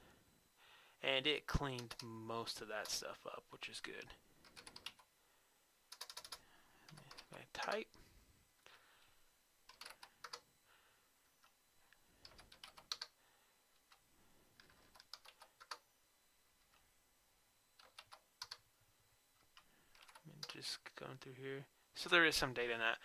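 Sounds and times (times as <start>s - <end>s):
typing on computer keyboard: 1.7s - 2.1s, 4.4s - 5.1s, 5.9s - 7.8s, 9.7s - 10.4s, 12.2s - 13.2s, 14.6s - 15.8s, 17.8s - 18.6s, 19.5s - 20.6s.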